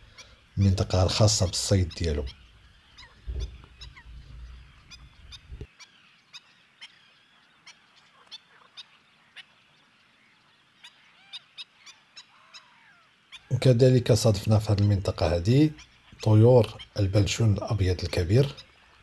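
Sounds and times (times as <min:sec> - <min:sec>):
waterbirds chirping: 0:00.0 - 0:19.0
low rumble: 0:03.2 - 0:05.7.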